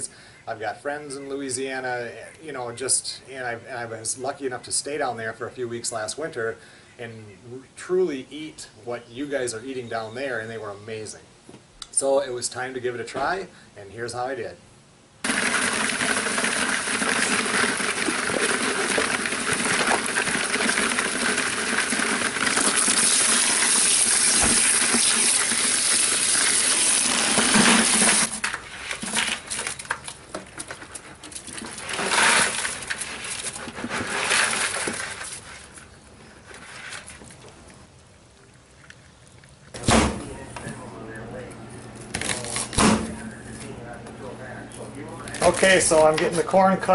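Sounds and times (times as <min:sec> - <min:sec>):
water spraying and splashing: 0:15.2 - 0:28.4
crayfish shells clattering: 0:15.3 - 0:35.9, 0:45.2 - 0:46.4.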